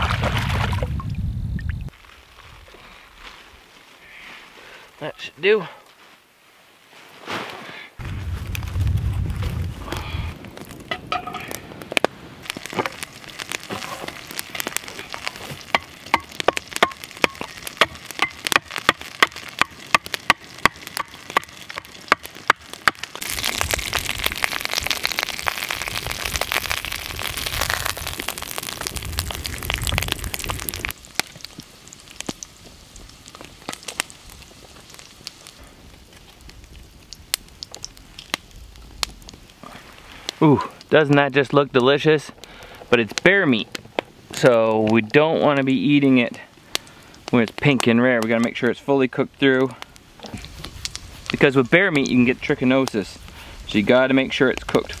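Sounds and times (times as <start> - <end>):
sharp crackling pops: 8.0 - 55.0
meat sizzling in a skillet: 12.4 - 35.6.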